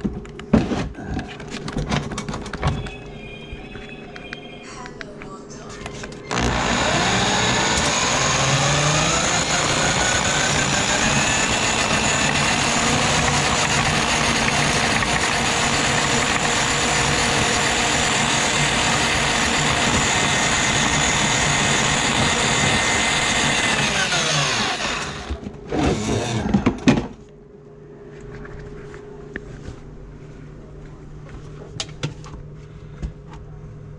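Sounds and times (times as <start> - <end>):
drum auger motor whining: 6.3 - 27.0.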